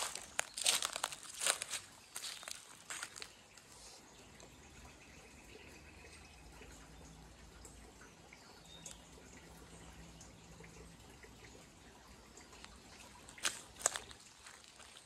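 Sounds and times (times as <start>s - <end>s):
crunching footsteps: 0.0s - 3.4s, 12.6s - 15.0s
water trickling and dripping: 0.0s - 15.0s.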